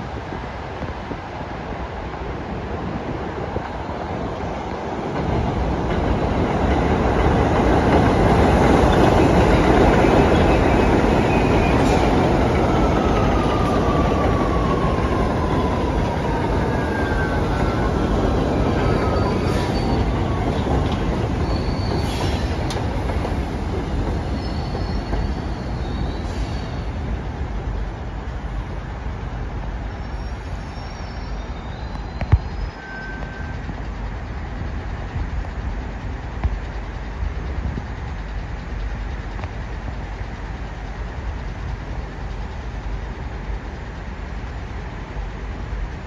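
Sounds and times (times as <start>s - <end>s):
train wheels rumbling on rails: 0.0s - 46.0s
high wheel squeals: 16.6s - 23.0s, 23.9s - 27.0s, 29.9s - 34.1s.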